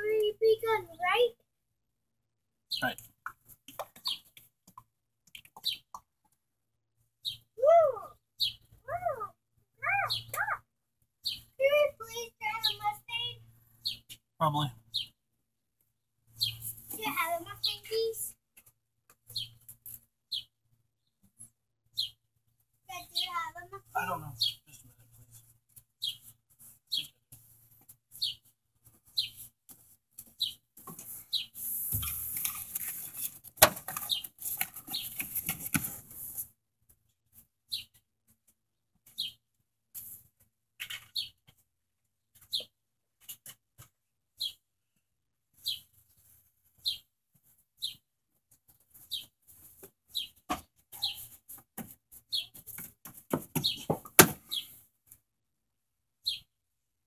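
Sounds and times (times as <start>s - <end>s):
bird chirping: 2.7s - 3.1s, 3.8s - 4.4s, 5.3s - 6.0s, 7.2s - 7.6s, 8.4s - 9.0s, 9.9s - 10.6s, 11.2s - 11.6s, 12.4s - 15.2s, 16.3s - 18.1s, 19.2s - 19.7s, 20.3s - 21.2s, 21.8s - 22.3s, 22.9s - 25.4s, 26.0s - 26.3s, 26.9s - 27.2s, 29.1s - 29.4s, 30.4s - 30.6s, 31.2s - 31.6s, 37.7s - 38.0s, 39.1s - 39.4s, 40.8s - 41.4s, 45.6s - 46.0s, 46.8s - 47.1s, 47.8s - 48.0s, 50.1s - 51.4s, 52.3s - 52.6s, 53.5s - 54.8s, 56.2s - 56.5s.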